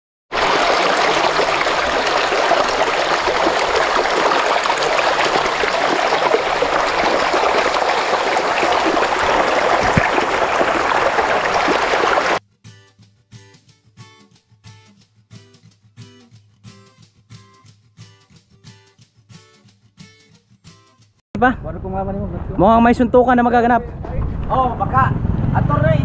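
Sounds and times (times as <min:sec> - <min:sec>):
flowing water rushing: 0:00.3 - 0:12.4.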